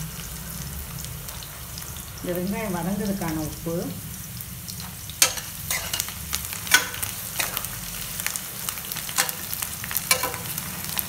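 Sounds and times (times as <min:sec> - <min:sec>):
vegetables sizzling in oil: 0:00.0 - 0:11.0
metal spoon scraping pan: 0:05.2 - 0:07.7, 0:09.1 - 0:10.6.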